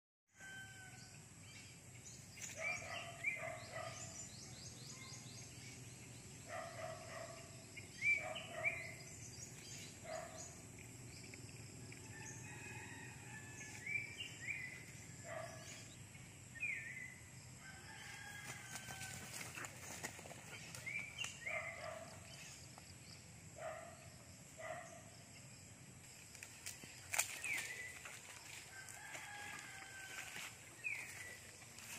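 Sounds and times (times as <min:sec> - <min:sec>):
birds calling: 0:06.4 - 0:11.4, 0:19.3 - 0:22.5.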